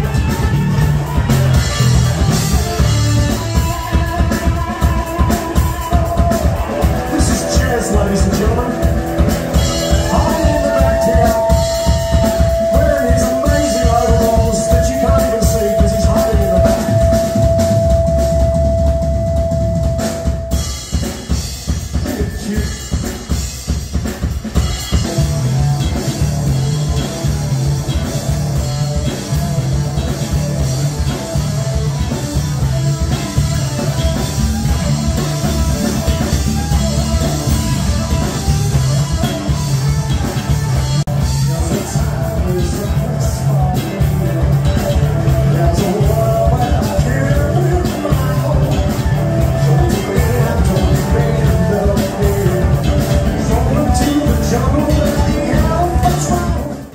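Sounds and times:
electric bass line: 0.0 - 56.9
live rock band playing: 0.0 - 56.9
held high note: 9.5 - 21.2.

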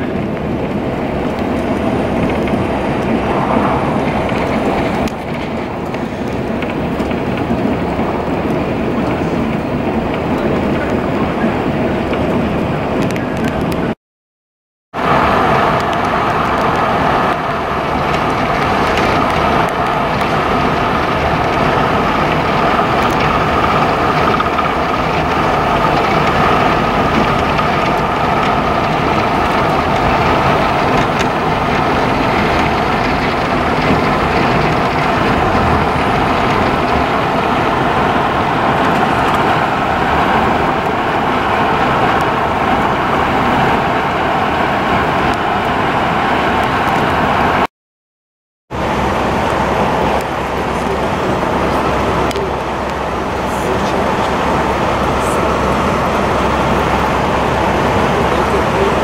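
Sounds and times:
vehicle tyre and engine noise: 0.0 - 14.0, 14.9 - 47.7, 48.7 - 59.0.

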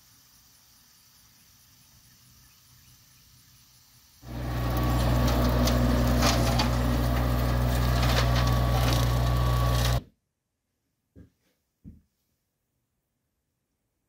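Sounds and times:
blades cracking stalks: 4.2 - 10.0
tractor diesel engine running: 4.2 - 10.0.

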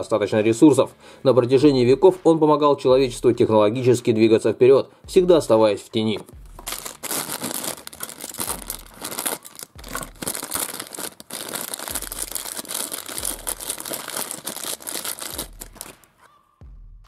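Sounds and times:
plastic packet crinkling: 6.1 - 16.3.

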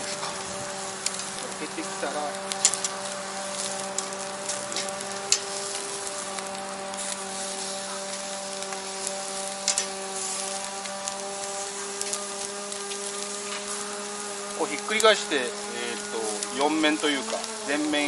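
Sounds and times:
steady low hum: 0.0 - 17.9
meat sizzling on a grill: 0.0 - 18.0
sharp crackles and pops: 0.0 - 18.0.

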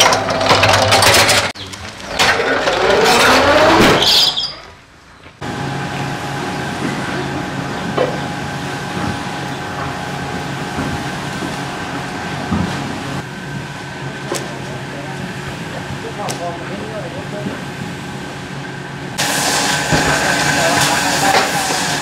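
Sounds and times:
metal cart rattling on concrete: 0.0 - 3.4
cart squeak: 0.0 - 4.8
mechanical hum with low drone: 0.0 - 22.0.

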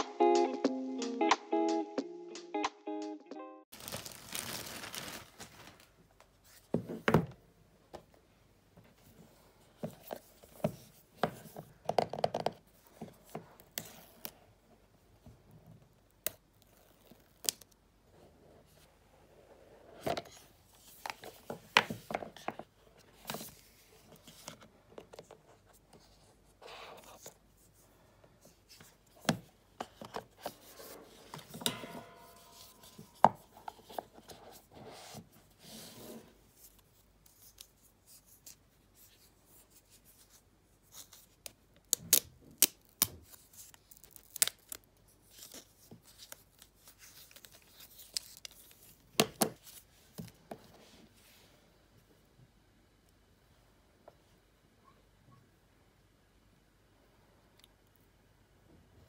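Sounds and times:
wrap peeling: 3.8 - 5.9.

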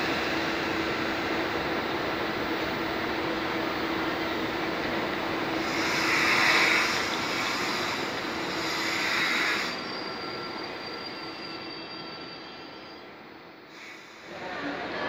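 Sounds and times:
train rolling past: 0.0 - 15.0
high wheel squeal: 5.6 - 13.2.

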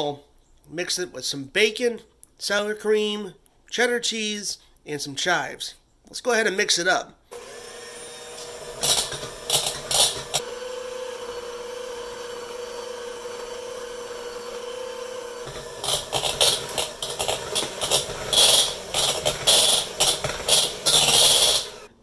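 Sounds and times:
electric hand mixer running: 7.3 - 22.0
beaters clattering against bowl: 8.4 - 10.4, 15.4 - 21.9.

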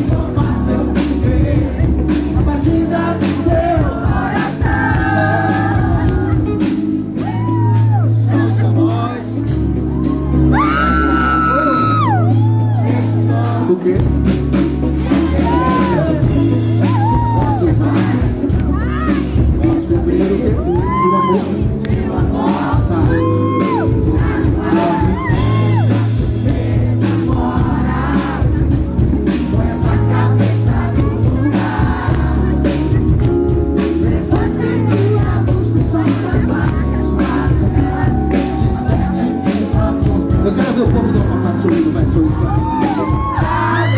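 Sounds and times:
man singing into microphone: 0.0 - 6.6, 8.1 - 9.4, 10.6 - 33.2, 33.8 - 43.9
live band music over pa: 0.0 - 43.9.

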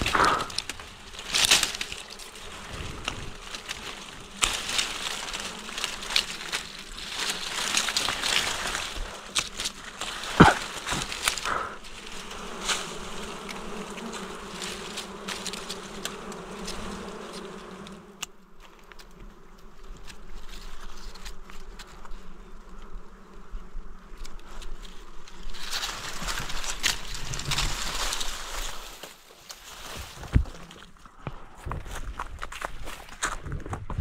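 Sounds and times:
loud rustle: 0.0 - 17.9, 24.4 - 31.0
flying insect buzzing: 0.0 - 31.2.

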